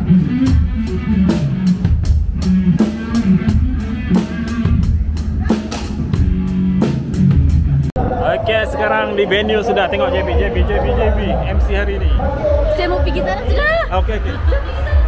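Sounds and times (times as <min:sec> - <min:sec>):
drum kit rock beat: 0:00.0 - 0:08.0, 0:10.3 - 0:15.0.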